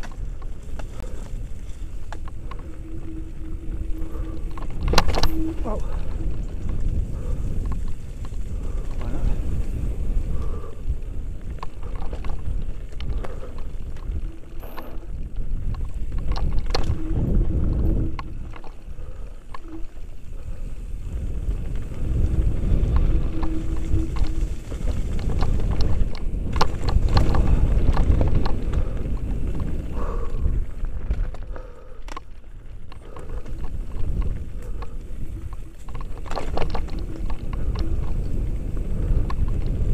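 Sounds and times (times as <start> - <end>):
bike rattling and knocking: 0.0 - 39.9
bike tyres rolling over dirt and stones: 0.0 - 39.9
wind rumble on microphone: 0.0 - 39.9.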